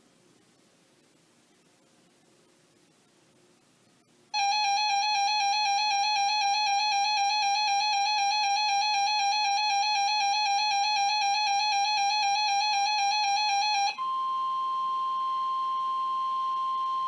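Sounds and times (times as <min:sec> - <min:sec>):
electronic warning alarm tone: 0:04.4 - 0:17.0.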